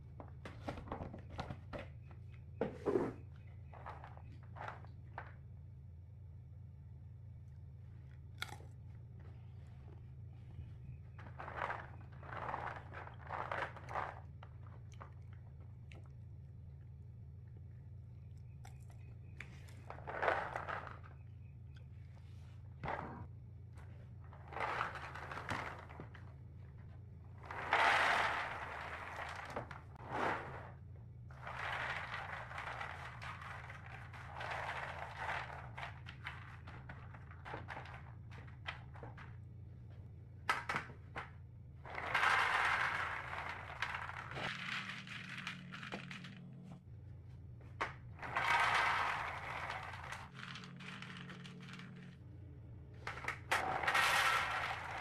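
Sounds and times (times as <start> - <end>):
low steady hum: 0.0 - 55.0
peanuts rattling on metal trays: 11.0 - 15.5, 19.8 - 21.4, 23.8 - 39.6, 40.4 - 46.6, 47.8 - 52.2, 53.0 - 55.0.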